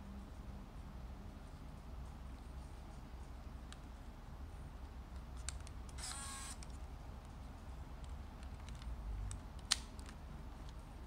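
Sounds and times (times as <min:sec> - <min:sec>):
camera clicks: 0:05.4 - 0:06.7
camera motor whirring: 0:05.9 - 0:06.6.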